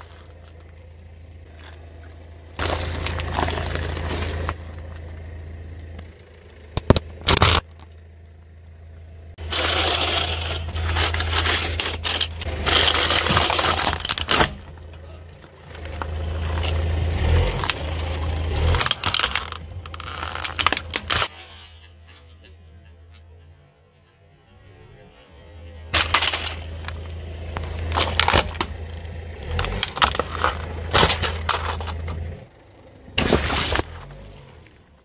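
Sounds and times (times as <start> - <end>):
tyre crushing crackers and plastic: 1.4 - 5.0, 6.8 - 8.0, 9.4 - 22.5, 25.9 - 32.4, 33.2 - 35.0.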